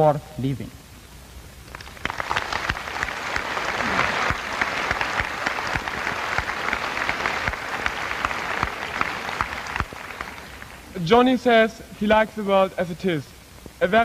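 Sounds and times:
audience applauding: 1.6 - 11.0.

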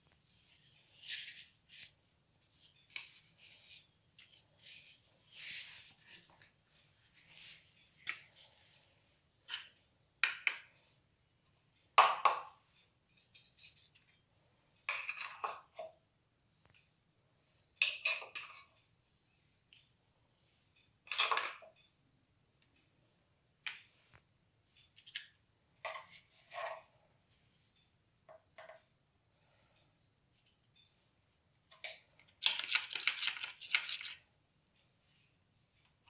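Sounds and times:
tableware knocks and clinks: 21.1 - 21.8.

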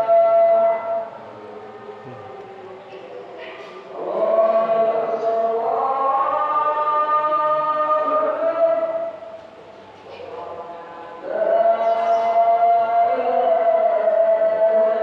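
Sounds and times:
man chanting: 2.0 - 2.4.

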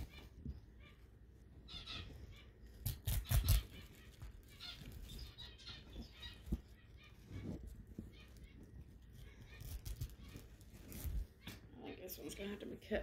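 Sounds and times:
artificial flowers rustling: 0.0 - 13.0.

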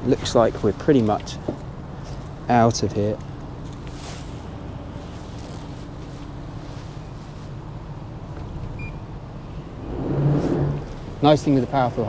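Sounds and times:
diesel engines idling: 0.0 - 12.0
hydraulic thrusters whirring: 9.7 - 11.2.

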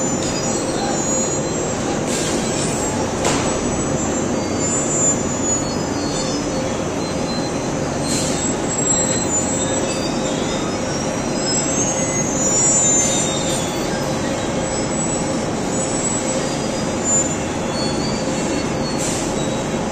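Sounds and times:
high-pitched metal squeals: 0.0 - 19.9.

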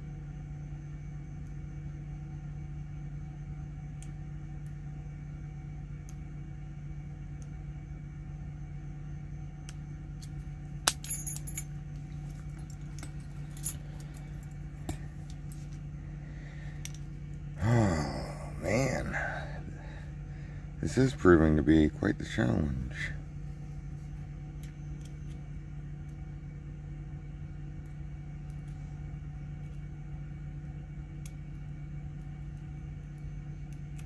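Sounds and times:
steady low hum: 0.0 - 34.0
tools clicking down: 10.2 - 11.6
metal jingle: 10.9 - 14.5.

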